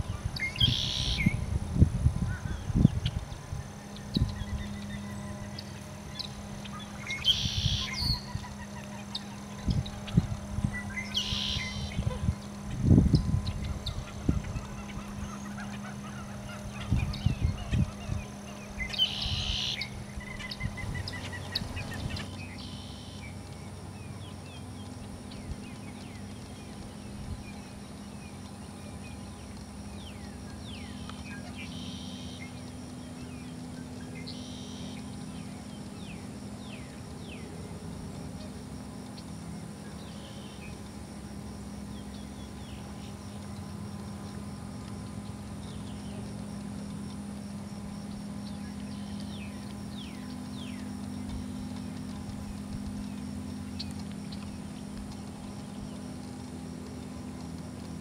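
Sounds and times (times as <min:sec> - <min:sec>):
bird chirps and trill: 0:00.0 - 0:01.5, 0:02.3 - 0:12.4, 0:13.0 - 0:23.4
steady low hum: 0:00.0 - 0:58.0
marsh birds harsh calls: 0:00.1 - 0:01.4, 0:02.3 - 0:23.4.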